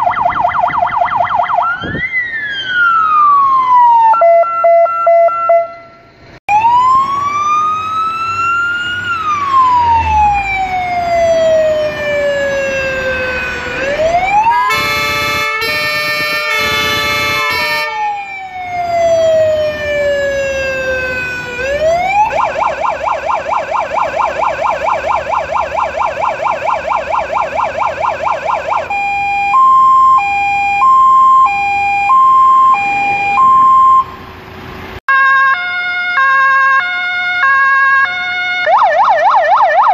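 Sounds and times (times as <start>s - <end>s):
two-tone siren: 0.0s - 34.2s, 35.1s - 39.9s
fire engine siren: 0.0s - 34.4s, 35.0s - 39.9s
horn blasts: 4.4s - 6.1s, 14.5s - 18.1s.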